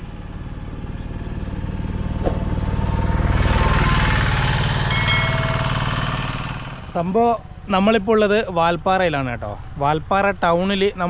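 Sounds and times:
motorcycle engine running: 0.0s - 11.0s.

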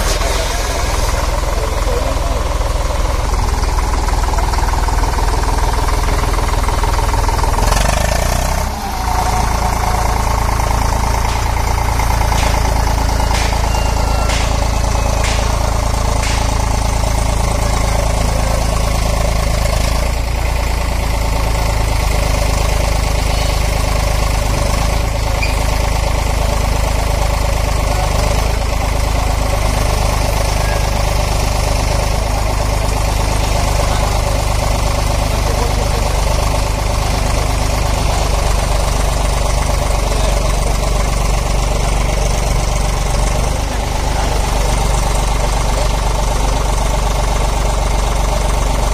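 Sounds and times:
tractor engine idling: 0.0s - 48.9s
sharp knocks: 11.0s - 17.0s.

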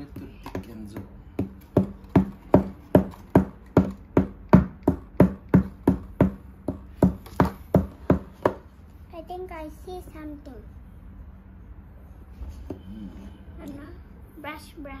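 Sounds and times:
plastic pickaxe tapping clay: 0.0s - 8.6s.

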